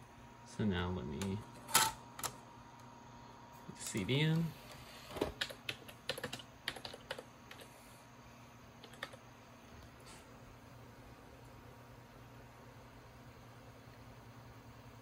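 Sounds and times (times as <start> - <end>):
laptop keyboard clicks: 5.4 - 7.6, 8.8 - 9.2.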